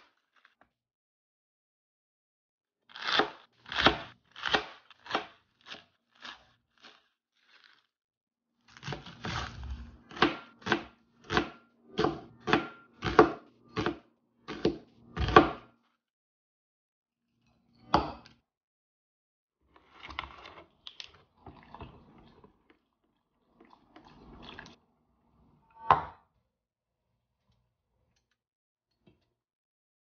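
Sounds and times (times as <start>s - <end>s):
knife slicing onion on board: 3.0s - 5.3s, 8.8s - 15.7s.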